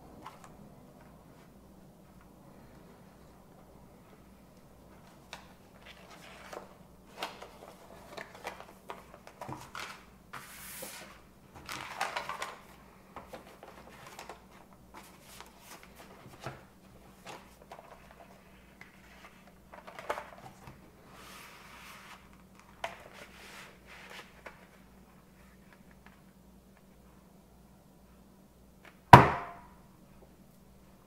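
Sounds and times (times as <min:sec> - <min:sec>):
record sleeves rustling: 0:04.0 - 0:26.3.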